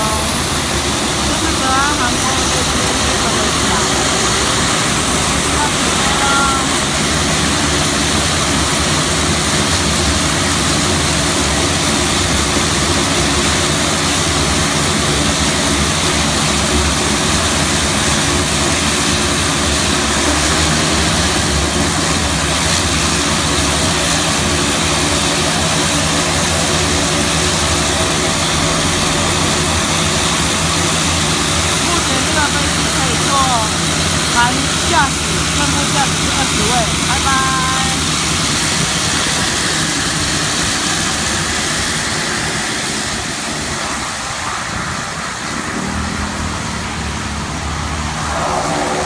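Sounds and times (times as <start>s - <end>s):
thin high whine: 0.0s - 8.4s, 41.4s - 49.0s
turboprop plane engines droning: 0.0s - 49.0s.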